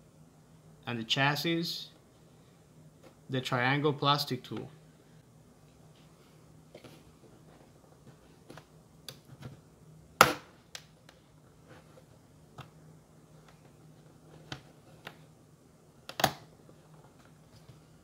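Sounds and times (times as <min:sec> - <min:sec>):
sharp plastic snaps: 0:16.0 - 0:16.5.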